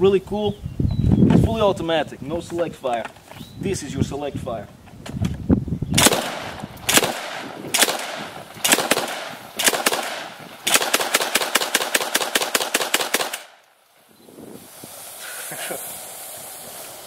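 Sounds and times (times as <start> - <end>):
automatic shotgun firing: 6.0 - 13.6.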